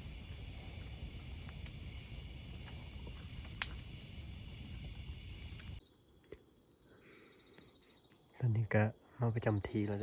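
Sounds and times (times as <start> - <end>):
night insects chirping: 0.0 - 10.0
sharp crack: 1.4 - 4.5
faint clicks: 3.5 - 3.9.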